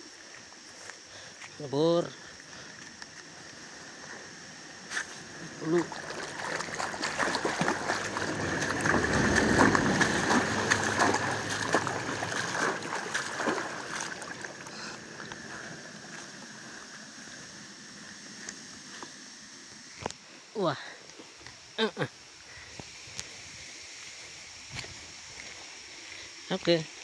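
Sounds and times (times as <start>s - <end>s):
feet splashing through shallow water: 5.0s - 17.2s.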